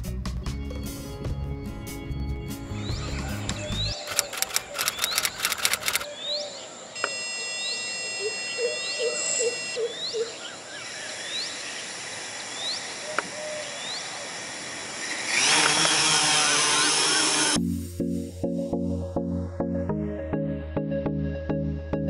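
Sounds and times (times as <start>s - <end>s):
birds chirping: 1.6s - 14.5s
electric motors whining: 3.0s - 6.0s, 10.5s - 17.6s.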